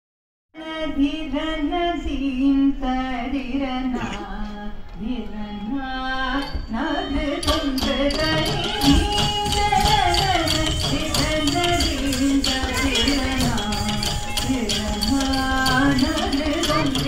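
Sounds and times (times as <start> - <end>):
percussion strokes: 6.4 - 17.0
person singing melody: 7.8 - 17.0.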